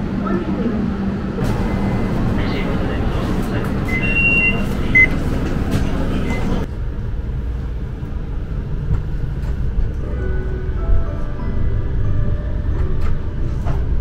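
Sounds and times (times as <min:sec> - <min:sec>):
tram rumble: 0:00.0 - 0:14.0.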